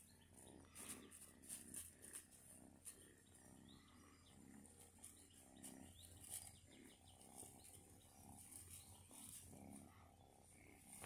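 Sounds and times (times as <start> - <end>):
faint soft petting sounds: 0.0 - 11.0.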